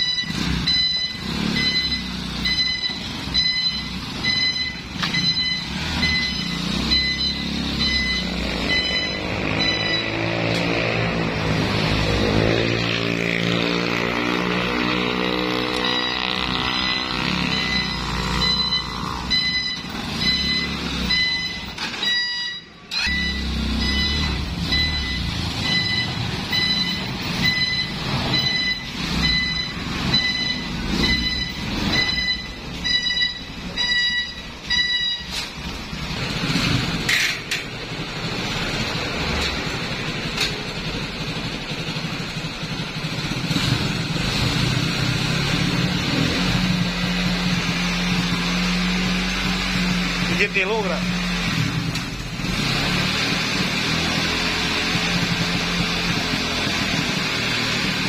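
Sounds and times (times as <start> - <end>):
high electronic beeper: 0.0 - 11.6, 14.8 - 35.7
atv engine running: 0.0 - 58.0.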